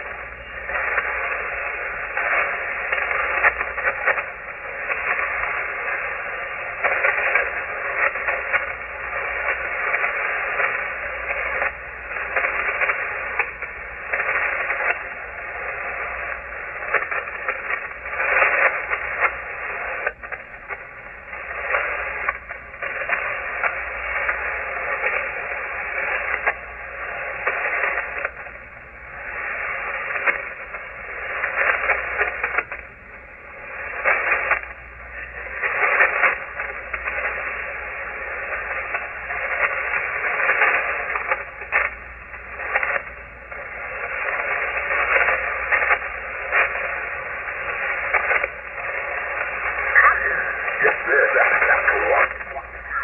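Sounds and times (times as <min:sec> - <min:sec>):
radio static hiss: 0:00.0 - 0:53.0.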